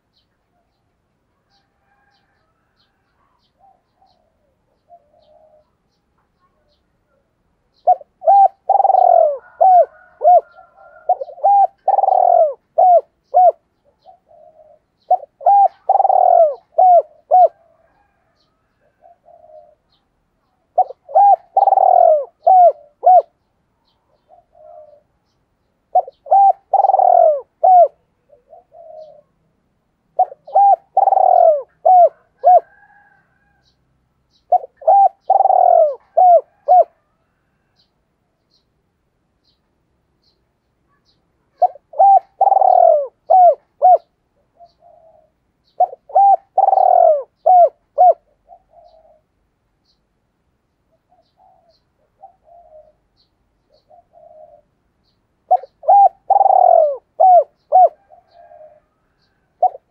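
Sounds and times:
soft low coos: 1.4 - 23.4, 25.9 - 29.5, 30.1 - 33.8, 34.5 - 37.9, 55.5 - 59.9
dove cooing: 1.4 - 25.2, 25.9 - 29.4, 30.1 - 37.9, 41.0 - 50.0, 50.9 - 59.9.

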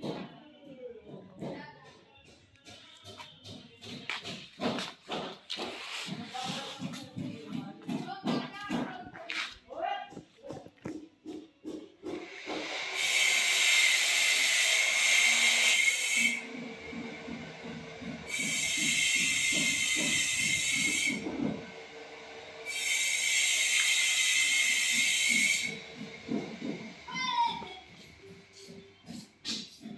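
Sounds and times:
loud hissing bursts: 12.5 - 16.4.

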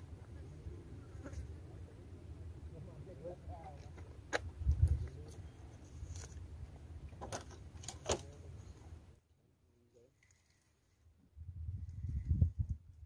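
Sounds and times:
wind rumble on microphone: 4.5 - 5.2, 11.3 - 13.0.

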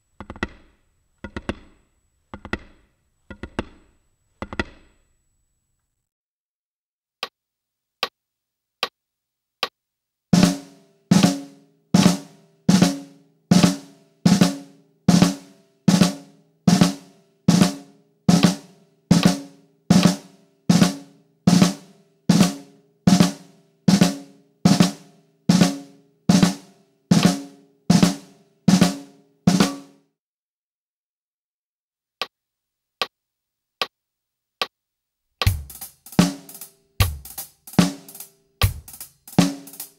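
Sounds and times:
drag ruffs on a drum: 10.4 - 29.9, 35.4 - 39.9.

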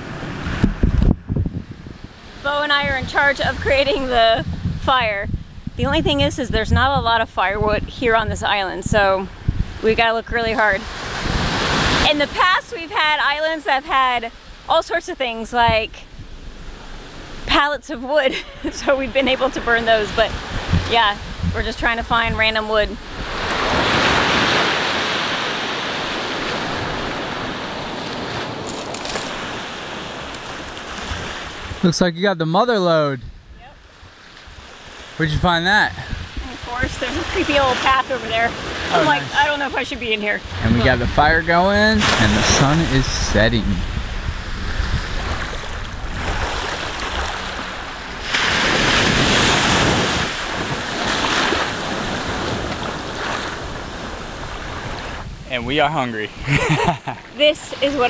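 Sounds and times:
wind rumbling on microphone: 0.0 - 31.9, 33.2 - 58.0
small waves washing on sand: 8.1 - 15.8, 18.7 - 31.8, 33.9 - 56.6
small wave washing on sand: 41.9 - 55.2.

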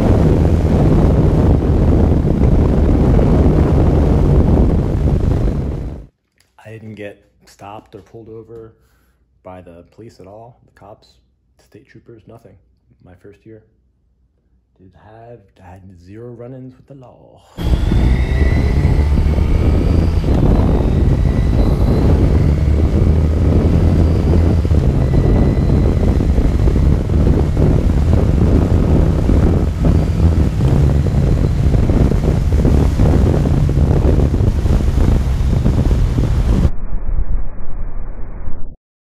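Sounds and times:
motorcycle engine running: 0.0 - 6.1, 17.6 - 36.7
wind noise on microphone: 0.0 - 6.1, 17.6 - 38.8.

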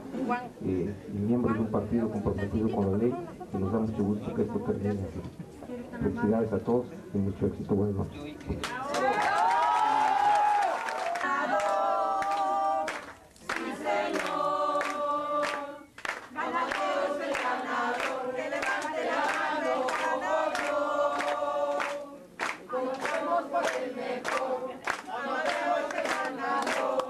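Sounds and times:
choir singing held notes: 11.2 - 27.0.

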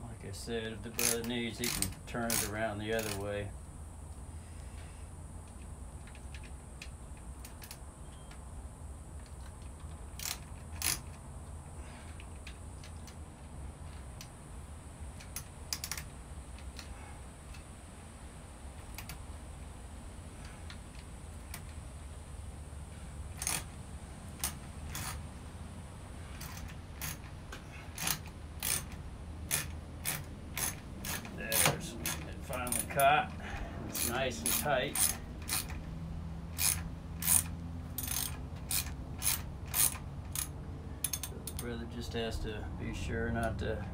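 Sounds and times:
steady low hum: 0.0 - 43.9
hand tool clicking: 1.0 - 3.3, 10.1 - 11.2, 15.2 - 16.9, 23.4 - 23.7, 24.4 - 25.2, 26.3 - 35.8, 36.6 - 41.7.

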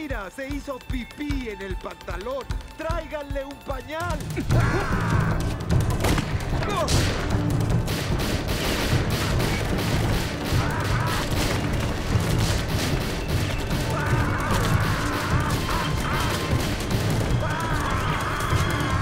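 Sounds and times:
rapid pistol shots: 5.6 - 19.0.

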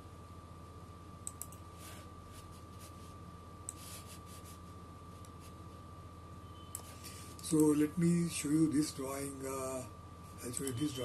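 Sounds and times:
faint thin whine: 0.0 - 11.0
low electrical hum: 0.0 - 11.0
computer mouse clicks: 1.2 - 1.7, 10.5 - 10.9.

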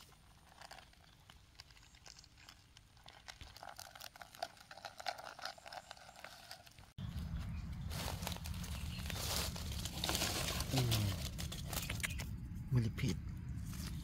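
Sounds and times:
small crackles: 0.0 - 7.0, 7.9 - 12.4
dry leaves rustling: 6.1 - 12.3.

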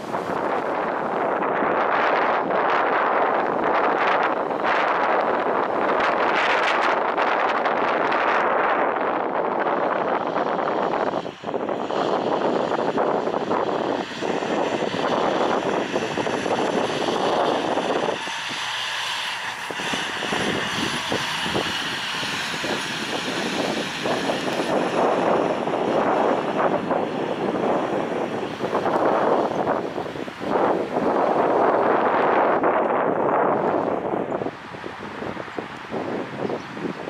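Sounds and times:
diesel truck engine driving past: 14.0 - 31.5.

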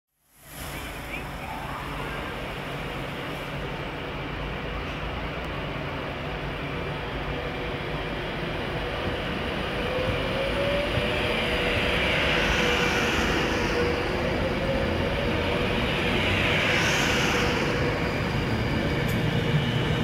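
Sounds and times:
electric train rumbling past: 0.3 - 20.0
train whine: 0.3 - 20.0.

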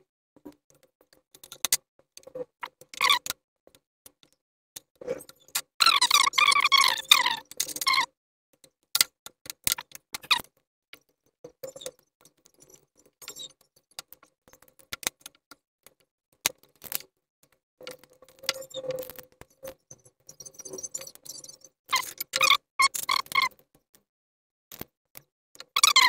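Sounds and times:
plastic parts clicking and tapping: 0.4 - 19.8.

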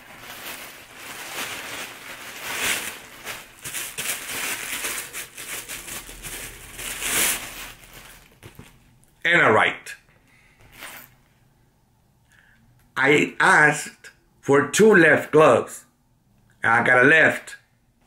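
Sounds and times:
plastic wrapping crinkling: 0.0 - 9.0, 10.6 - 11.3.

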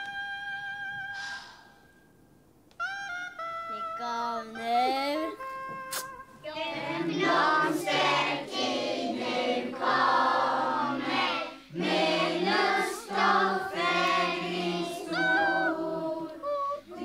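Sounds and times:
young children singing: 6.4 - 17.0.

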